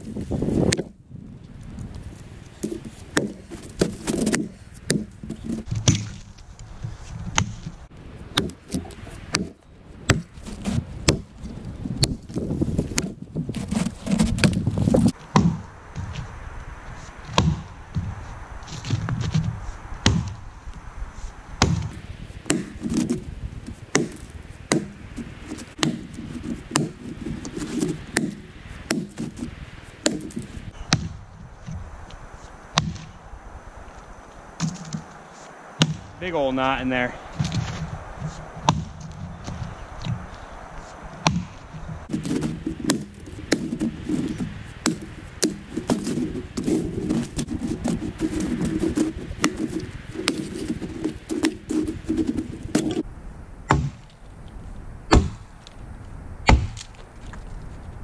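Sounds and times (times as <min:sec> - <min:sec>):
axe chopping into log: 0:02.6 - 0:06.3, 0:08.3 - 0:11.3, 0:15.3 - 0:15.6, 0:17.3 - 0:17.7, 0:20.0 - 0:20.4, 0:21.6 - 0:23.2, 0:23.9 - 0:31.2, 0:32.8 - 0:33.1, 0:35.8 - 0:36.1, 0:38.6 - 0:39.0, 0:41.2 - 0:53.0, 0:53.7 - 0:54.1, 0:55.1 - 0:55.5, 0:56.5 - 0:56.9.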